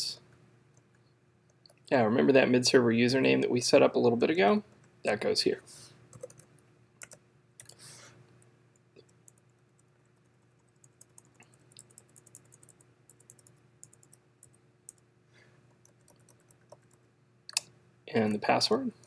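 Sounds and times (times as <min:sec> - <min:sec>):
keyboard typing: 0:06.1 - 0:07.8, 0:08.7 - 0:15.0, 0:15.7 - 0:17.6.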